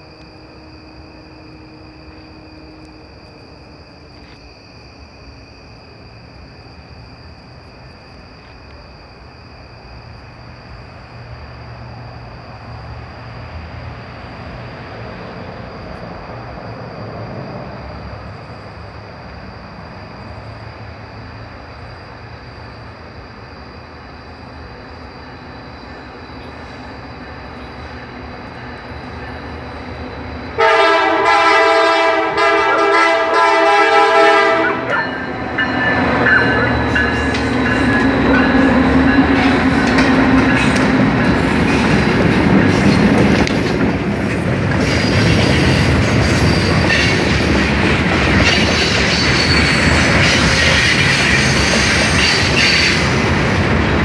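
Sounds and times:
freight car wheel and rail noise: 0.0 - 54.0
diesel locomotive rumble: 5.6 - 54.0
locomotive air horn: 30.6 - 35.0.

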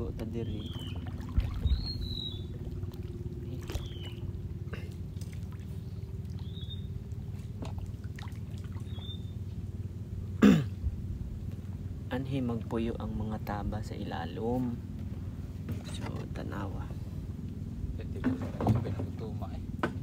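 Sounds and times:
boat paddling: 0.0 - 20.0
steady low hum: 0.0 - 20.0
water trickling and lapping: 0.0 - 20.0
bird chirps: 0.3 - 2.7, 3.6 - 4.4, 5.8 - 7.0, 8.8 - 9.5.

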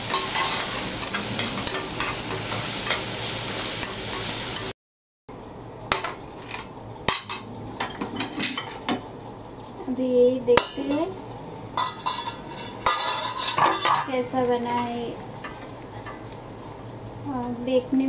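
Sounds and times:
curry sizzling and bubbling: 0.0 - 4.7, 5.8 - 18.0
utensils clinking and knocking: 11.8 - 14.1.

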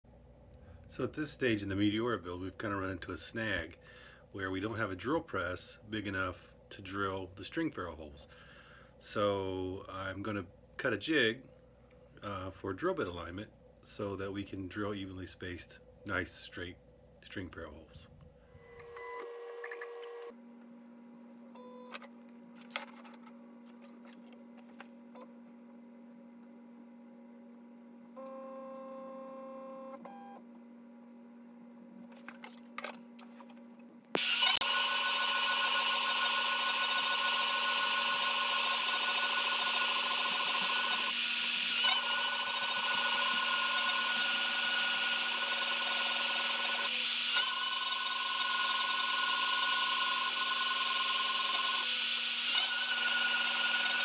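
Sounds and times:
faint steady hum: 0.1 - 34.2
router spindle high whine: 34.2 - 54.0.

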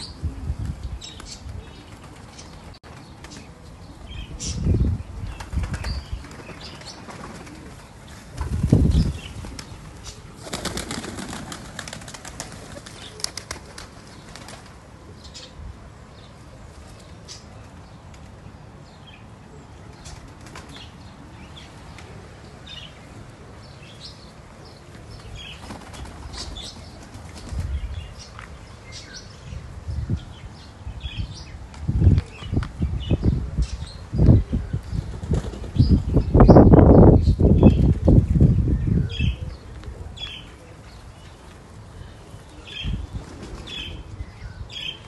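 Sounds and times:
pigeon wings flapping: 5.4 - 14.8, 20.1 - 20.9, 25.6 - 27.7, 35.1 - 35.8.

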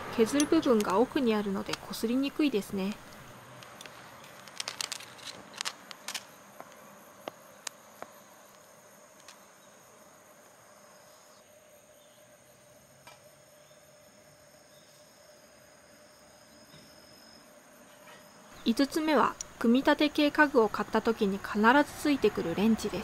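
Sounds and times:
insects chirring: 0.0 - 23.0
sharp small clicks and crackles: 0.3 - 2.3, 2.9 - 6.8.

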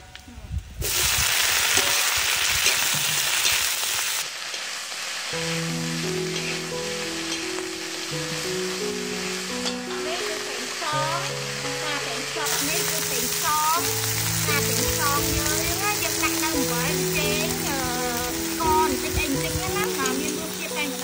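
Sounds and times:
vegetables sizzling in a wok: 0.0 - 21.0
metal spatula scraping wok: 1.5 - 4.7, 5.3 - 7.6, 9.2 - 9.9
slow background music: 5.3 - 21.0.

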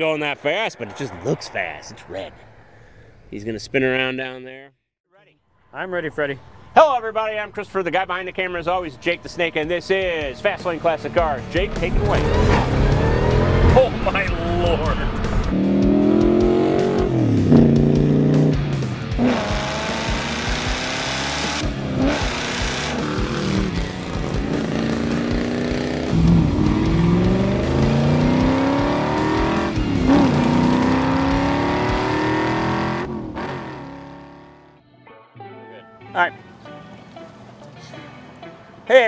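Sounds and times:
car engine accelerating hard: 11.6 - 34.6.

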